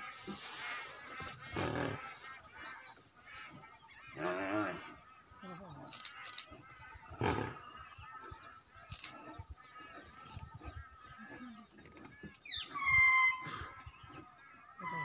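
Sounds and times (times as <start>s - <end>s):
high-pitched insect drone: 0.0s - 15.0s
faint bird chirps: 2.5s - 15.0s.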